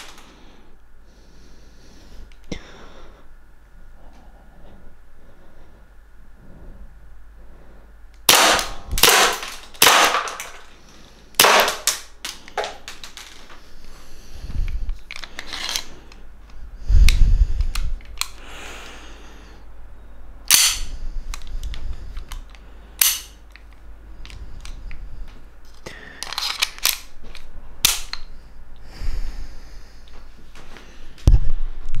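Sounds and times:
airsoft pistol shots: 8.3 - 10.5, 11.4 - 12.0.

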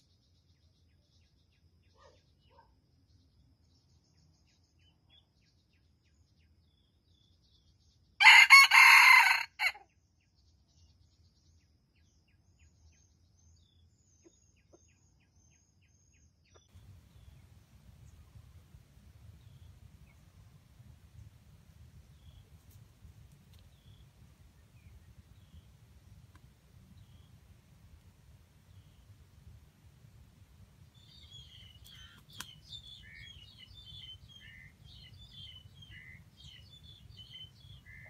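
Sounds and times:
rooster crowing: 8.2 - 9.8.

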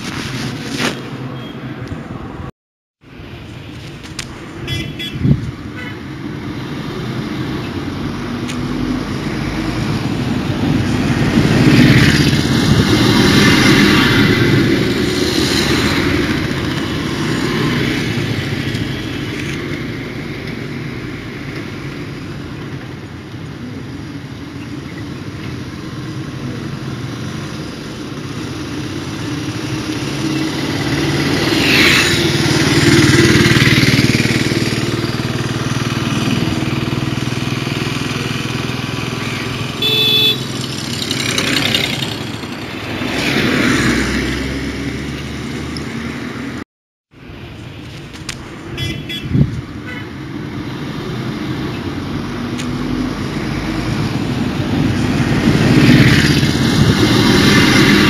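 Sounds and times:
motorcycle engine running: 30.5 - 42.8.

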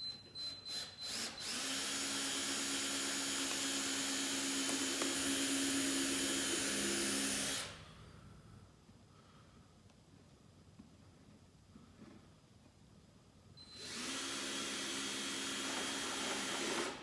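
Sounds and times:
power drill boring into wood: 0.7 - 7.7, 13.7 - 17.0.

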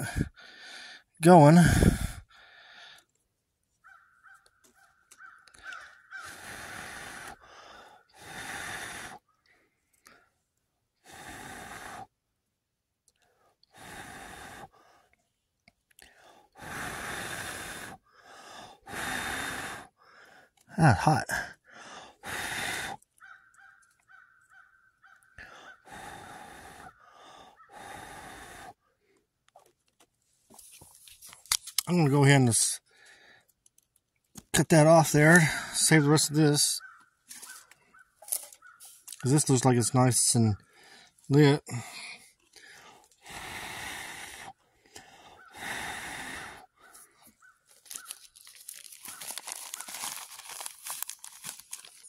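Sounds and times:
breathy blowing: 0.0 - 3.0, 6.2 - 9.3, 11.0 - 12.1, 13.7 - 15.0, 16.0 - 20.6, 21.3 - 23.1, 25.4 - 28.8, 40.6 - 52.0
person blowing on ember: 6.2 - 7.5, 11.0 - 12.1, 13.7 - 14.8, 16.5 - 18.1, 43.2 - 44.6, 45.3 - 47.0
tinder crackling: 45.2 - 52.0.

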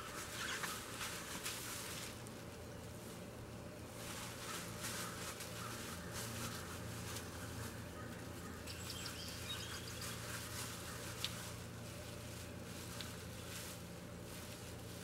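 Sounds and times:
bird chirps: 8.6 - 10.6
faint rustling: 9.9 - 15.0.

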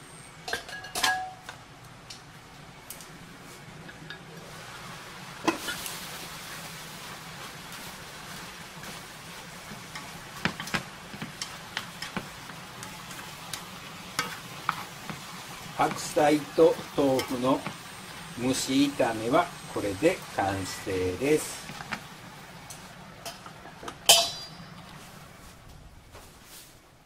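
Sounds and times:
food sizzling in a frying pan: 4.2 - 25.4.

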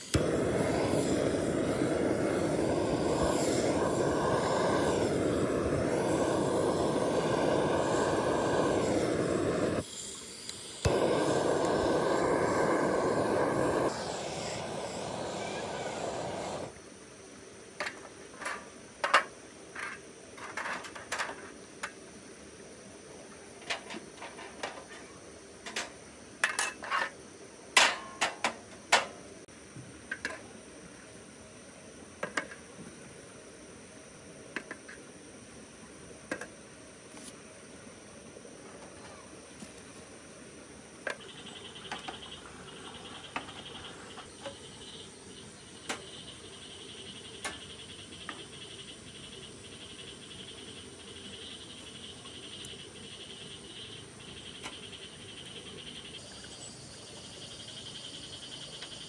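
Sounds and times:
torch flame roaring: 0.0 - 9.9, 10.6 - 16.7
torch ignition click: 0.1 - 9.8, 10.4 - 16.7.

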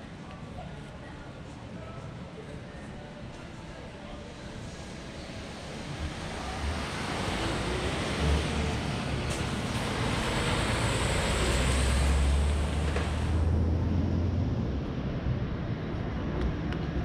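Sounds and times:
vehicle passing by: 5.5 - 15.0.

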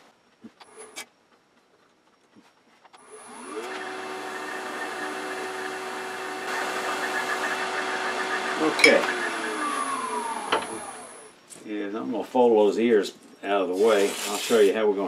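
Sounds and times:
lathe motor humming: 3.0 - 11.3.

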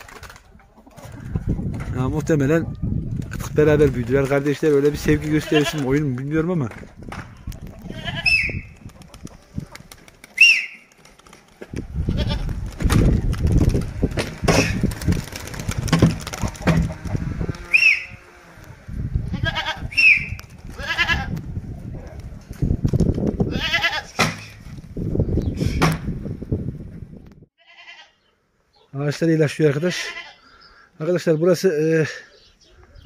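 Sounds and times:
goats bleating: 5.2 - 6.0, 7.8 - 8.4, 19.3 - 19.9, 20.8 - 21.3, 23.5 - 24.2, 27.6 - 28.2, 29.9 - 30.5
knocks and rustling: 12.5 - 17.6.

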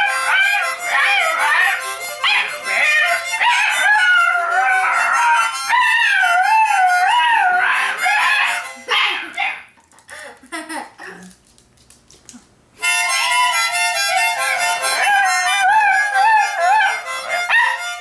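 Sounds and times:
dog howling: 0.0 - 8.7, 14.8 - 17.9
harmonica playing: 0.0 - 9.0, 12.8 - 18.0.

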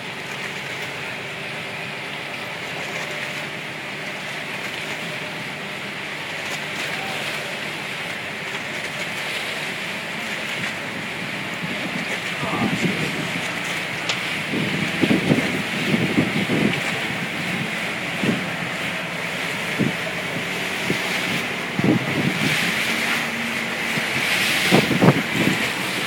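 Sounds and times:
boat engine drone: 0.0 - 26.0
water rushing past hull: 0.0 - 26.0.

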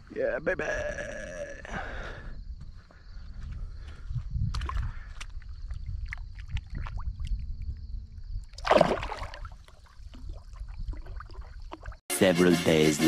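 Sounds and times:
small water ticks: 4.4 - 8.6, 9.4 - 12.0
water splash: 8.5 - 12.0.

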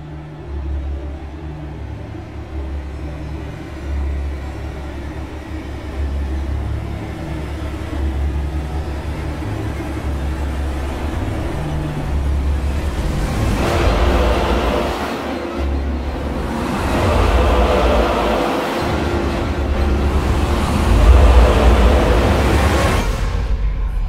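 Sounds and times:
low rumbling drone: 0.1 - 24.0
deep bass pulse: 11.8 - 24.0.

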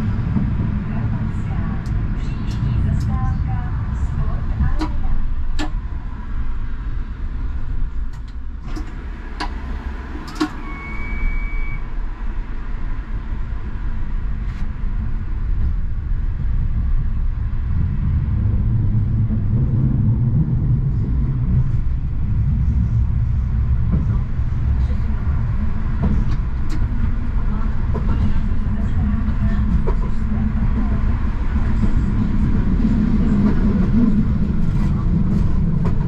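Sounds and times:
tram rumble: 0.0 - 36.0
high beep: 10.6 - 11.8.

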